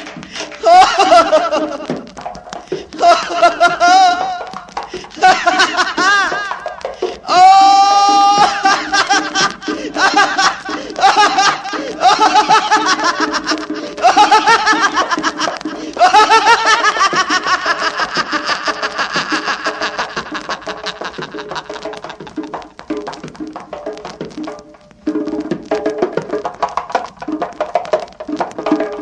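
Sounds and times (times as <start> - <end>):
man laughing rhythmically: 0.0 - 24.2
instrumental backing music: 0.0 - 29.0.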